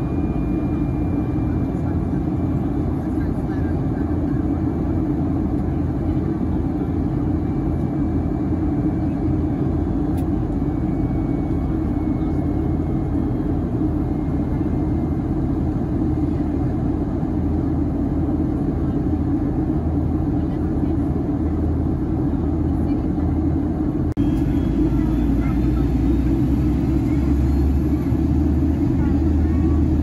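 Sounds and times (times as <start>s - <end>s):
aircraft cabin engine rumble: 0.0s - 30.0s.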